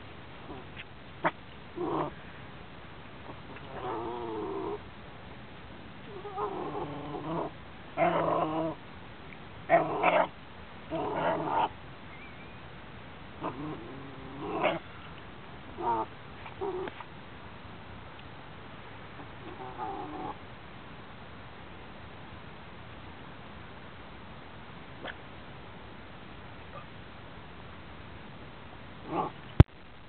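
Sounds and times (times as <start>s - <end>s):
puppy vocalizing: 13.4s - 14.9s.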